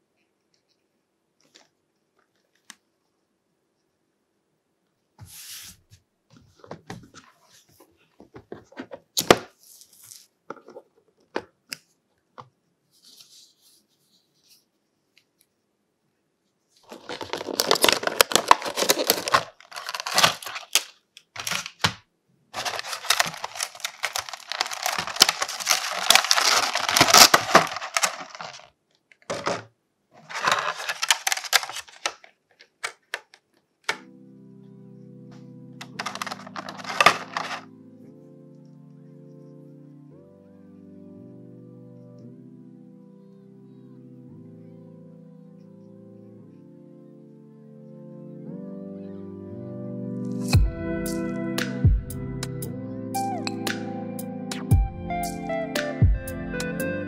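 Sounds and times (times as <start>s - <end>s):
plastic crackling and crinkling: 16.8s - 34.0s, 35.8s - 37.7s.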